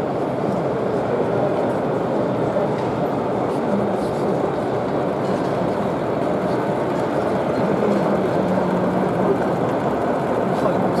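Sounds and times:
exhibition hall background noise: 0.0s - 11.0s
model train rumbling hum: 0.0s - 11.0s.

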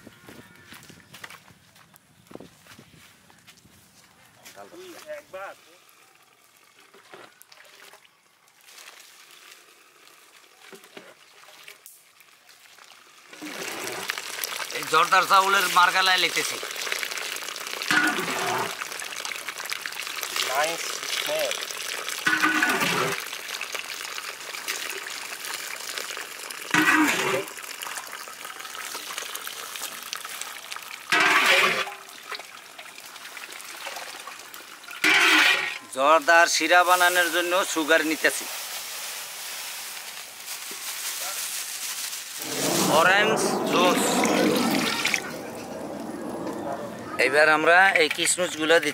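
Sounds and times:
water draining through rice: 5.7s - 38.3s.

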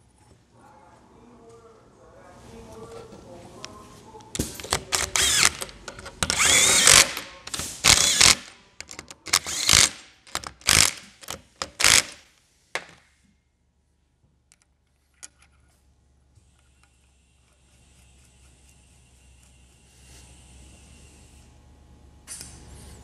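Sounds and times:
cordless power driver driving bolts: 4.4s - 12.2s.

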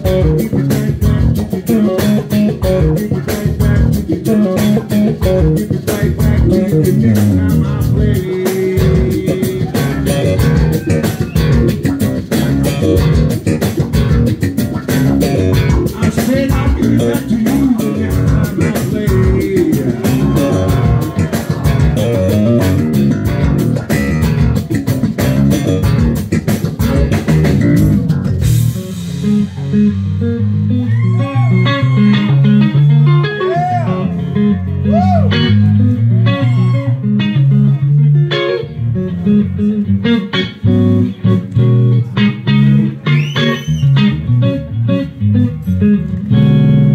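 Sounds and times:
bass guitar: 0.0s - 46.9s
blues-rock band playing: 0.0s - 46.9s
electric guitar bent notes: 0.0s - 46.9s.

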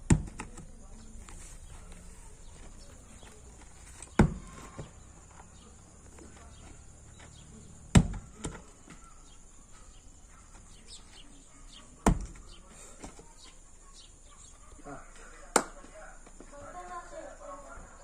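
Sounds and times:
heavy stones thudding on dirt: 0.0s - 9.2s, 12.0s - 13.3s
stone tumbling knock: 4.1s - 5.0s.

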